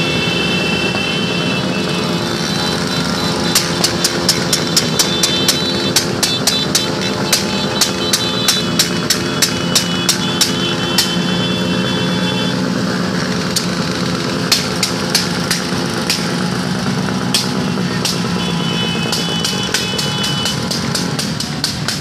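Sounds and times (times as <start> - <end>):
small motorcycle engines droning: 0.0 - 22.0
sharp clicks: 2.7 - 11.3, 19.0 - 22.0.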